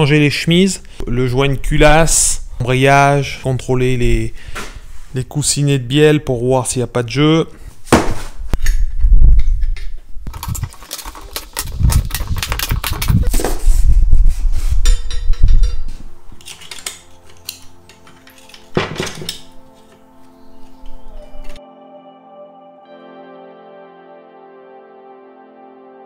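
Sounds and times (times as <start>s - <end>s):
soft background music: 15.3s - 26.0s
steel pushrods clinking: 16.4s - 19.9s.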